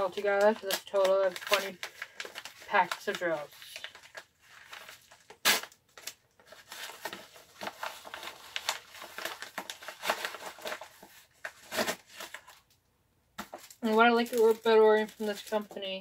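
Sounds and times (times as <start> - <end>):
paper envelope crinkling: 0.0 - 12.7.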